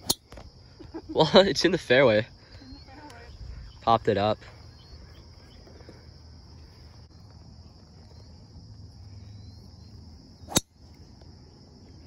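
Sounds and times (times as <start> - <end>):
high-pitched insect chorus: 0.0 - 12.0
golf ball struck by driver: 10.5 - 10.7.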